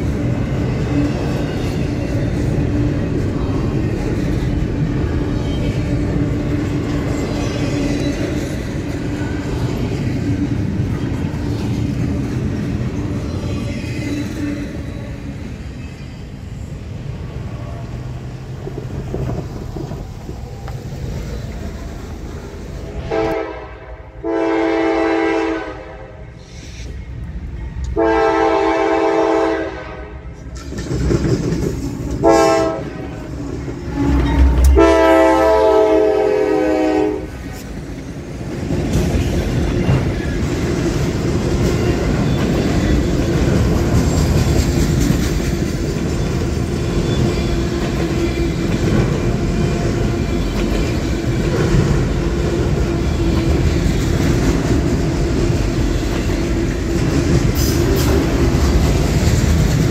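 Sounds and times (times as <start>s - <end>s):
freight train wheels clattering on rails: 0.0s - 23.4s, 30.3s - 59.9s
locomotive air horn blasts: 23.0s - 26.3s, 28.0s - 30.3s, 32.2s - 33.2s, 33.9s - 37.4s.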